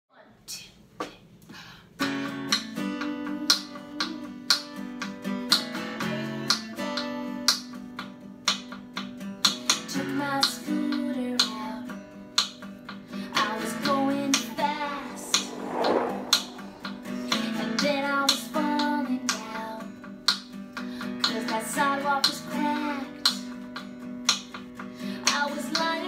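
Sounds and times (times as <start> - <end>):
strummed acoustic guitar: 2.0 - 13.8, 19.0 - 26.0.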